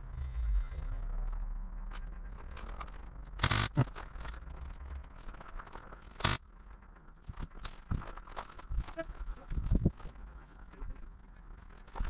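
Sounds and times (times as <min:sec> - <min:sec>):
footsteps and gear rustling: 0:07.3 - 0:10.7.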